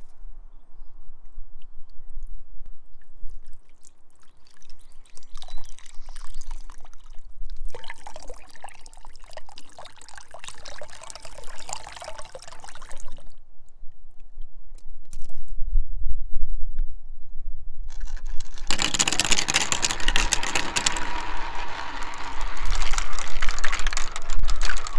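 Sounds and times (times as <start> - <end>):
water splashing into a bowl: 3.2 - 13.4
wind rumble on microphone: 13.1 - 18.7.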